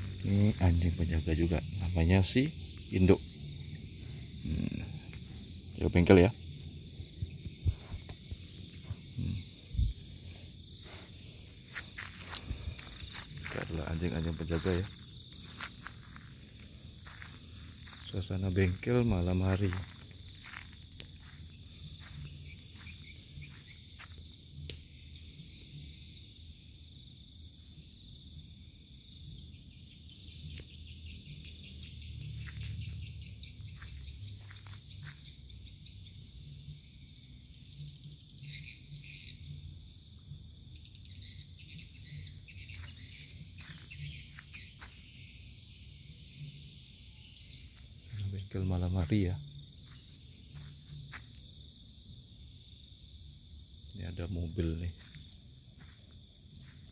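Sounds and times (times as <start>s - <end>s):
insects chirping: 0.0s - 56.9s.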